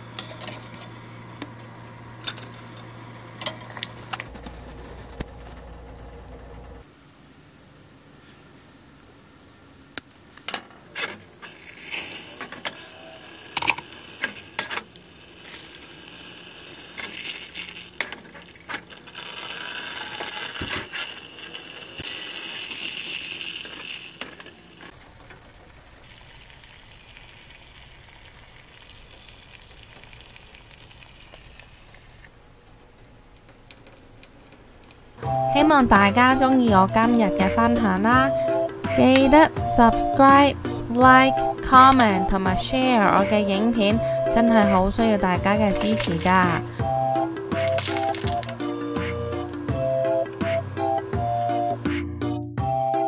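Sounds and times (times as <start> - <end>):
sugar water simmering: 11.4 - 34.8, 43.0 - 47.0
sugar pieces clicking and knocking: 13.6 - 25.0, 33.4 - 35.0, 45.7 - 46.6, 47.5 - 48.6.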